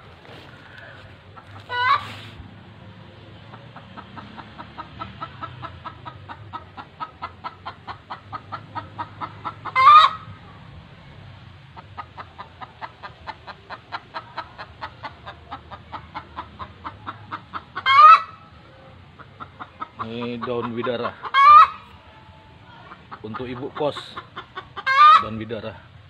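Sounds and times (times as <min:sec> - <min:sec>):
chickens clucking: 0:00.0 - 0:26.0
chicken squawks rising in pitch: 0:01.6 - 0:02.3.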